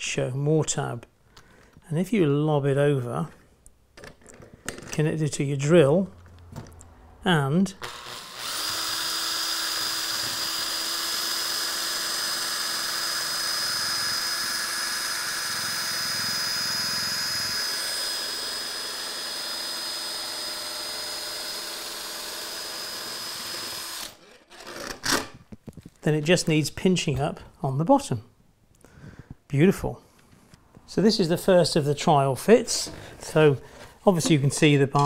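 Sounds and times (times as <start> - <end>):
cordless drill motor whine: 7.8 - 24.2.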